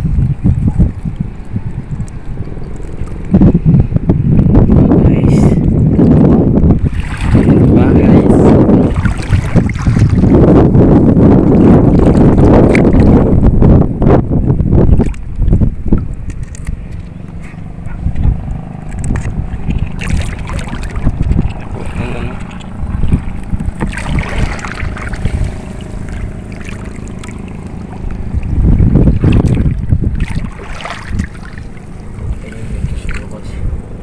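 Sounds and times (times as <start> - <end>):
wind buffeting microphone: 0.0 - 34.0
water sloshing around wading legs: 6.8 - 8.1, 8.7 - 10.6, 14.9 - 34.0.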